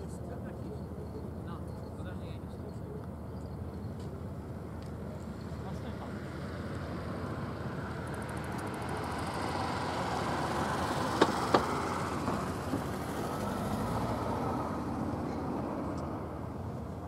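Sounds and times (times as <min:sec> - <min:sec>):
sharp knocks: 0:11.2 - 0:12.4.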